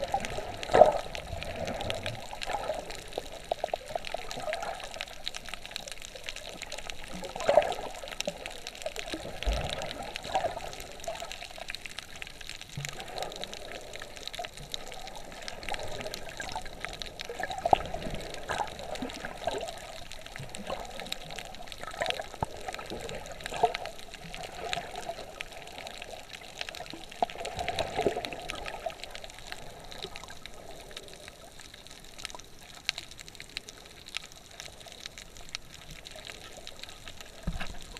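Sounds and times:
faint clicks: 0.0s - 37.9s
muffled underwater sloshing: 0.0s - 37.9s.

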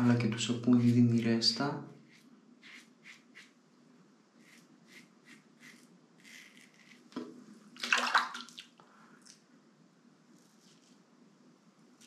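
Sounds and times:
razor scraping stubble: 2.1s - 3.5s, 4.4s - 7.0s.

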